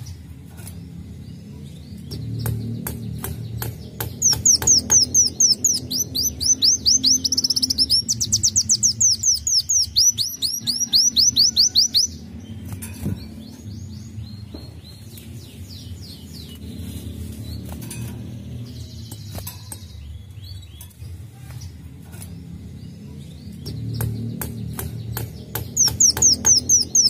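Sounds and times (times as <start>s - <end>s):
bird ticks: 2.1s - 12.1s, 23.5s - 27.0s
faint bird chirps: 4.2s - 13.7s.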